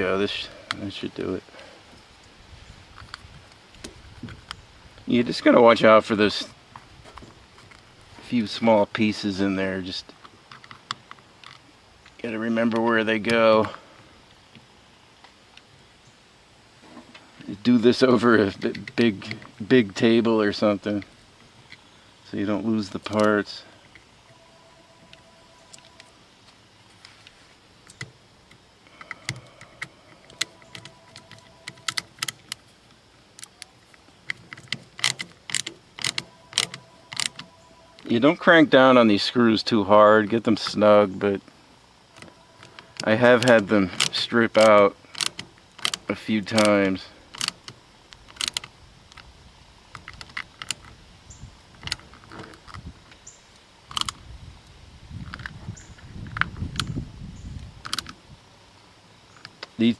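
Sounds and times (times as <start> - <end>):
handling rustle: 16.8 - 38.5
ratcheting screwdriver clicks: 34.3 - 37.5, 47.3 - 49.3.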